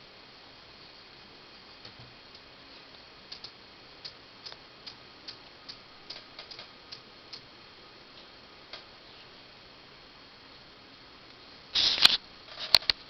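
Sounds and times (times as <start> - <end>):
faint steady hiss: 0.0 - 13.0
small sharp clicks: 3.3 - 7.5.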